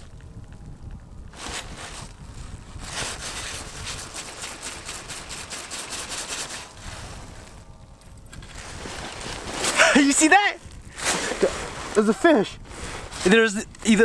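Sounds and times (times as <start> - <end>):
wind rumbling on microphone: 0.0 - 14.0
jacket fabric rustling: 1.3 - 7.7, 8.4 - 14.0.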